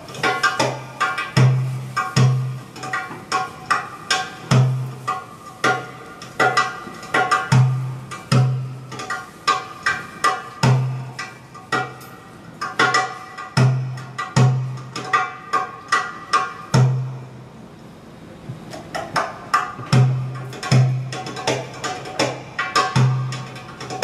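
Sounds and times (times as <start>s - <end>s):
hand drum playing: 0.0s - 17.5s, 18.6s - 24.0s.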